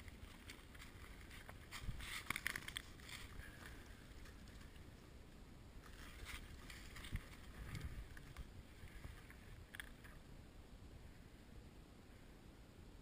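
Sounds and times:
dry leaves crunching: 0.0 - 4.8
wind on microphone: 6.5 - 9.6.

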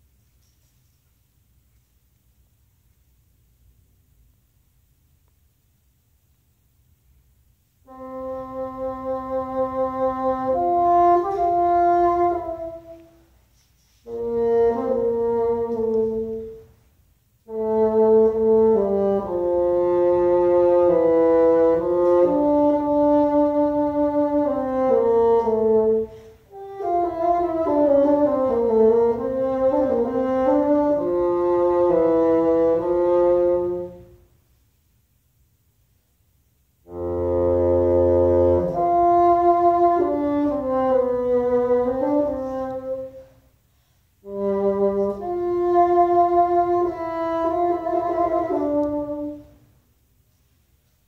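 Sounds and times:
bassoon melody: 7.9 - 13.3, 14.0 - 16.8, 17.4 - 34.3, 36.8 - 43.4, 44.2 - 49.6.

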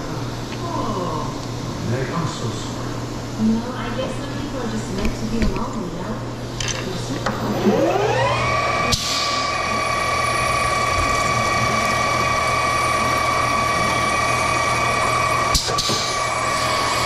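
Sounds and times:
lathe spindle gear whine: 7.5 - 17.0.

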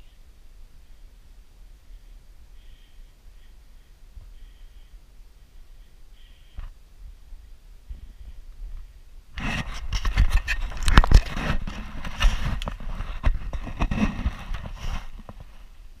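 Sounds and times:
loud scraping and crackling: 9.4 - 15.6.

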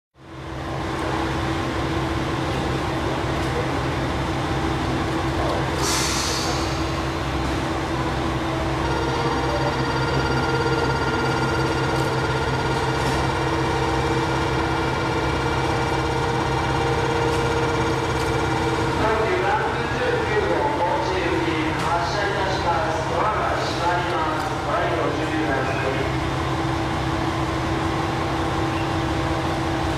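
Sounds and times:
diesel engine idling: 0.2 - 29.9
short hiss: 5.8 - 6.8
high ringing tone: 8.6 - 18.6.

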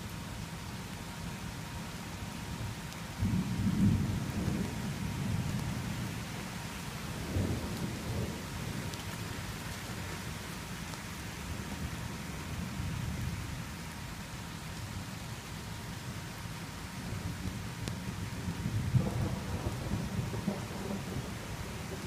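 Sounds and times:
steady rain: 0.0 - 22.0
thunder rumbling: 3.2 - 6.5, 7.1 - 9.1, 17.1 - 22.0.

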